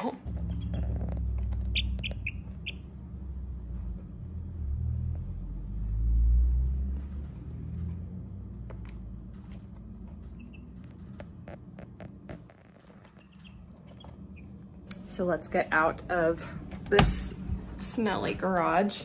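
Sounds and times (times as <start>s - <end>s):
low rumble: 0.2s - 18.8s
baby chicks peeping: 0.3s - 3.0s, 10.2s - 11.0s, 12.9s - 14.7s.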